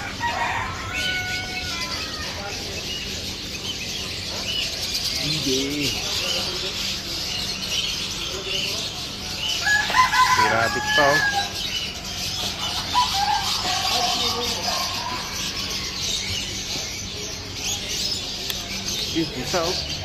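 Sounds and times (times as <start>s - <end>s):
rooster crowing: 0.0s - 2.4s, 9.6s - 11.7s
small birds chirping: 0.0s - 20.0s.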